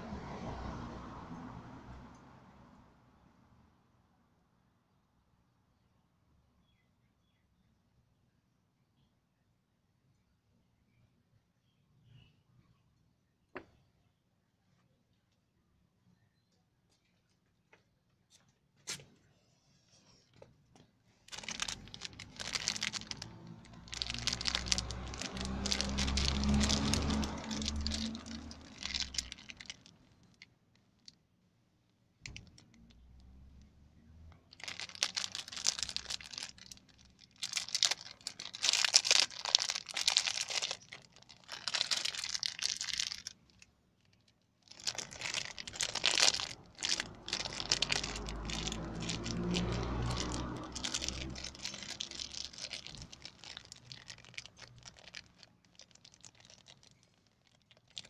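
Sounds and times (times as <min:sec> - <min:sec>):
packaging crinkling and tearing: 0:21.3 - 0:30.4, 0:34.5 - 0:58.0.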